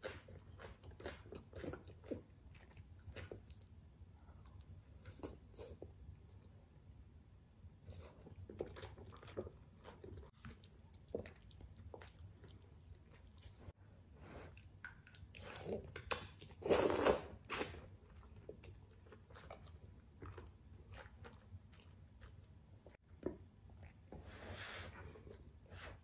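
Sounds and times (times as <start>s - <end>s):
wet chewing: 0.0s - 5.8s, 8.0s - 13.7s.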